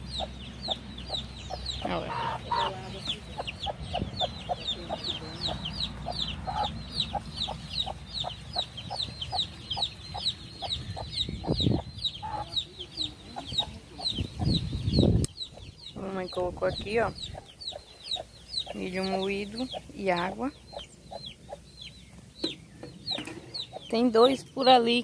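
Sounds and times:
chicks peeping: 0:00.0 - 0:25.0
hen clucking softly: 0:00.1 - 0:14.6.

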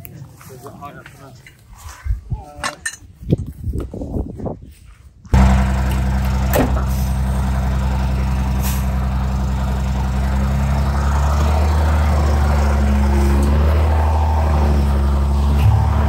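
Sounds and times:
heavy vehicle engine running: 0:05.4 - 0:16.0.

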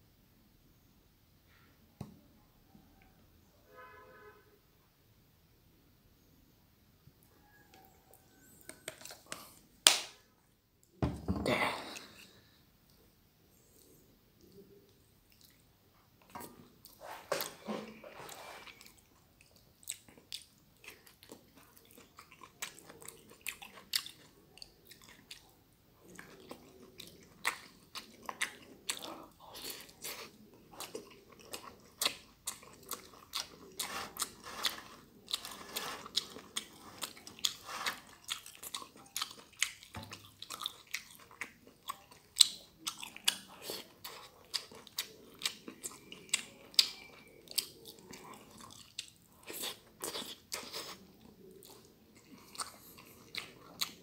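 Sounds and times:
close chewing and biting: 0:16.3 - 0:54.0.

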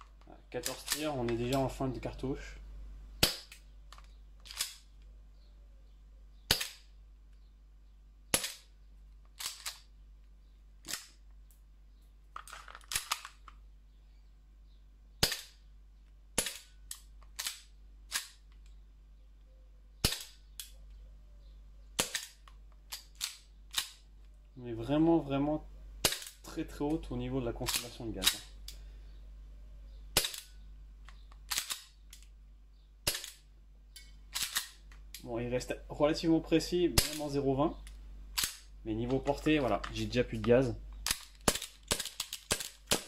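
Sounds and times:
airsoft pistol shots: 0:41.4 - 0:43.0.

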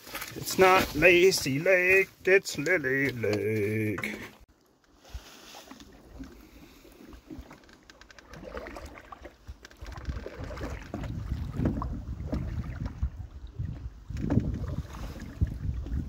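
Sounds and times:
paddle strokes: 0:00.0 - 0:16.0
water swishing along hull: 0:00.0 - 0:16.0
wind buffeting microphone: 0:09.8 - 0:16.0.

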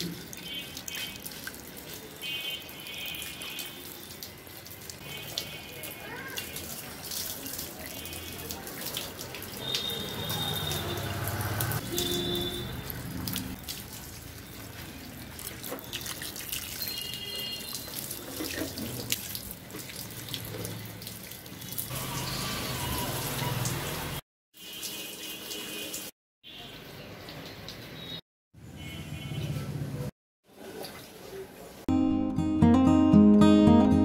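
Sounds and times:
hose water splashing on plants: 0:00.0 - 0:26.1.

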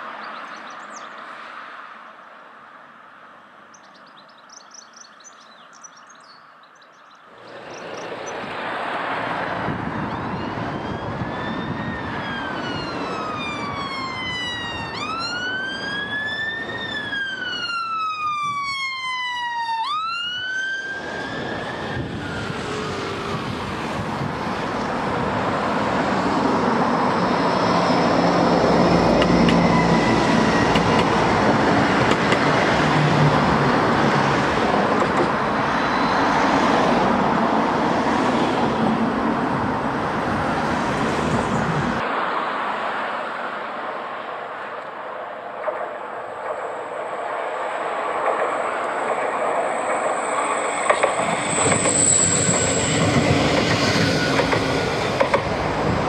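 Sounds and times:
traffic noise: 0:00.0 - 0:56.0
emergency siren wailing: 0:09.4 - 0:34.5, 0:35.4 - 0:42.0, 0:49.7 - 0:56.0.

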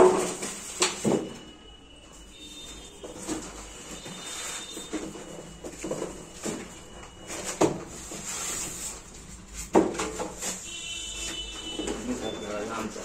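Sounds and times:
cardboard scraping and rustling: 0:02.8 - 0:12.3.

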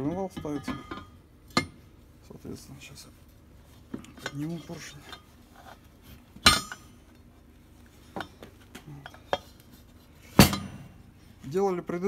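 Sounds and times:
metal engine parts clinking: 0:00.0 - 0:01.8, 0:03.9 - 0:07.2, 0:08.0 - 0:11.0.

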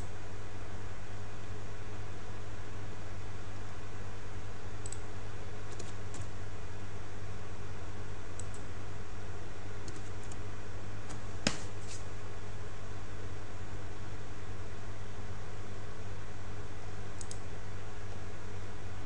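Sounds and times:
mouse clicks: 0:04.8 - 0:05.0, 0:17.2 - 0:17.4
keyboard keystrokes: 0:05.7 - 0:06.3.

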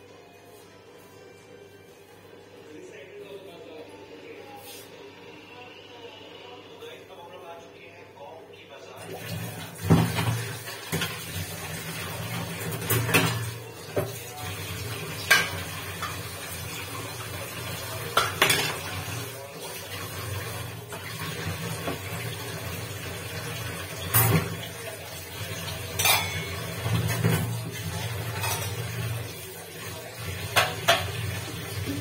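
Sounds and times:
steel utensils and pots clanking: 0:12.2 - 0:14.2, 0:15.2 - 0:16.5, 0:18.0 - 0:19.1, 0:24.0 - 0:24.7, 0:25.6 - 0:29.2, 0:30.4 - 0:31.7.

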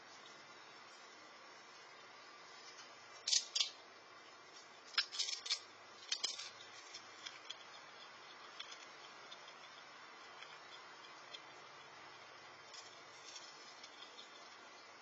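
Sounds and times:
squirrel cracking peanut shells: 0:01.8 - 0:03.8, 0:04.6 - 0:15.0.

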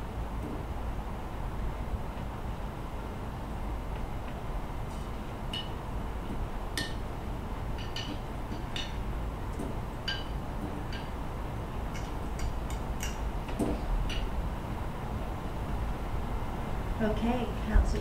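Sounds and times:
glass tubes clinking: 0:07.8 - 0:09.0, 0:10.1 - 0:11.2.

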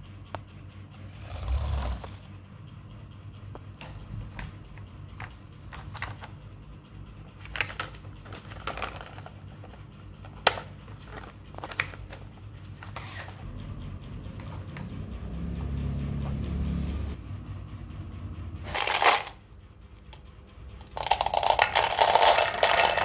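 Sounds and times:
low rolling rumble: 0:13.4 - 0:18.7
marbles clicking: 0:18.7 - 0:19.4, 0:20.8 - 0:23.0
marbles rolling on wooden run: 0:20.8 - 0:23.0.

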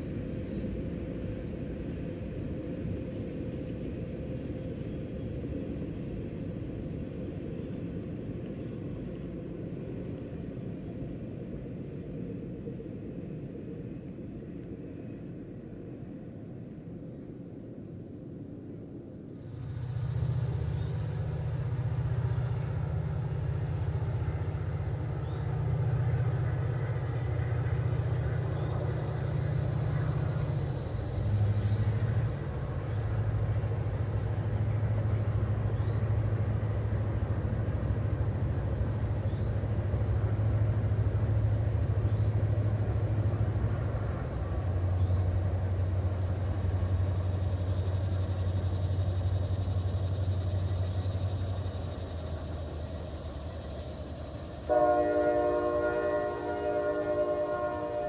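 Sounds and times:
locomotive engine drone: 0:00.0 - 0:58.0
steady high buzz: 0:19.4 - 0:58.0.

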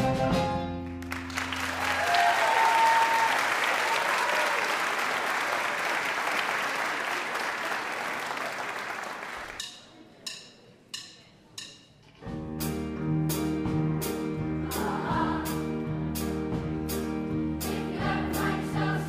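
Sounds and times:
band playing with drum beat: 0:00.0 - 0:00.8, 0:09.5 - 0:19.0
audience applause: 0:01.0 - 0:09.6.

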